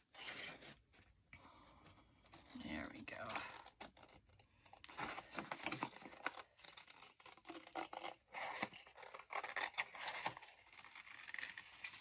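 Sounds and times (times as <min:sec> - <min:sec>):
paper scraping and rustling: 0:00.0 - 0:01.0
scissors cutting paper: 0:05.0 - 0:12.0.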